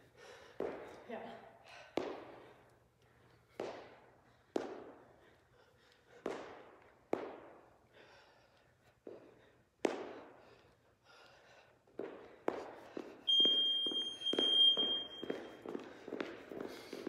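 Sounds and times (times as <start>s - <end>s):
feet thudding on rubber floor: 11.9s - 17.0s.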